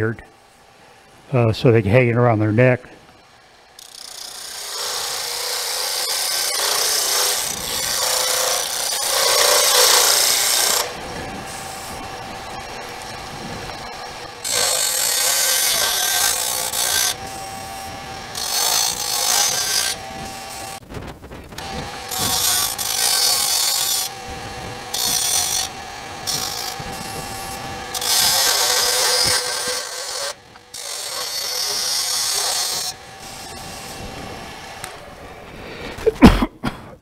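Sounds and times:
lathe tool scraping wood: 0.0s - 36.1s.

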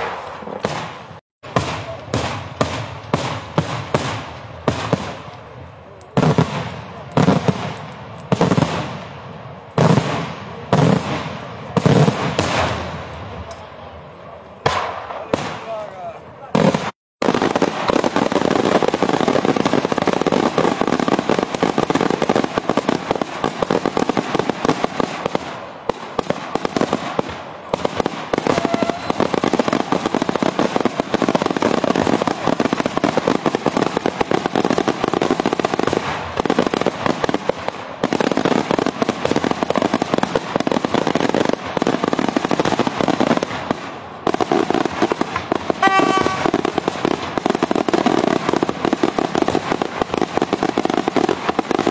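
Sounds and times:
firework bangs and crackle: 0.0s - 51.9s.

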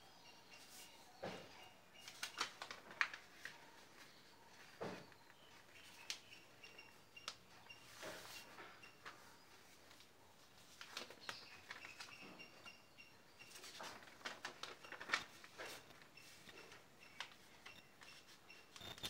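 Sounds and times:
paper rustling and crinkling: 0.6s - 6.5s, 7.3s - 12.6s, 13.4s - 19.0s.

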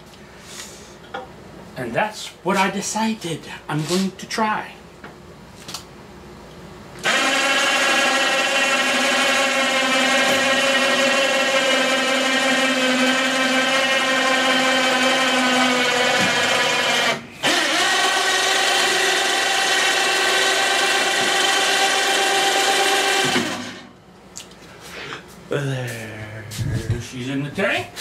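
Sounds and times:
electric hoist motor whirring: 7.0s - 23.9s.

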